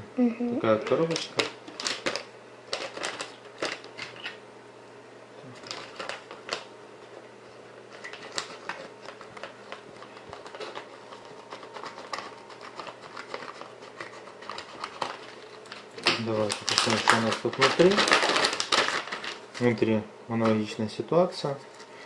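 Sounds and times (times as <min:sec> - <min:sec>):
foil bag crinkling: 0:01.0 - 0:04.4, 0:05.5 - 0:06.7, 0:07.8 - 0:19.8.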